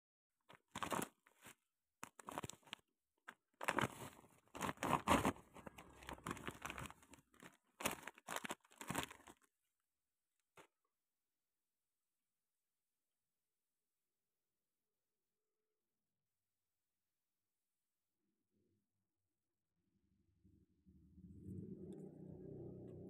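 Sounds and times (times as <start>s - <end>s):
plastic packaging crinkling: 0.5s - 9.5s.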